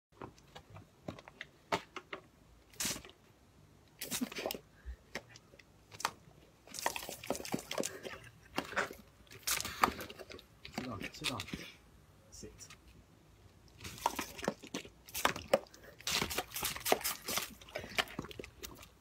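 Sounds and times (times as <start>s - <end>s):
hose spray splashing: 2.7s - 3.1s, 4.0s - 4.6s, 15.1s - 18.4s
dog chomping water: 6.7s - 9.0s, 13.8s - 18.9s.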